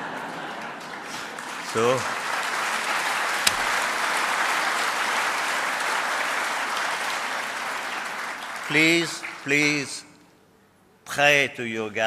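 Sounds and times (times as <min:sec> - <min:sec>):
audience applauding: 0:00.0 - 0:09.8
sharp click: 0:03.5 - 0:03.8.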